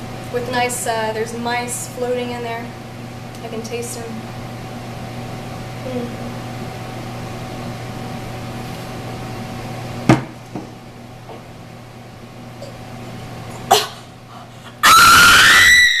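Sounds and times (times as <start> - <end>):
woman screaming: 14.8 - 16.0.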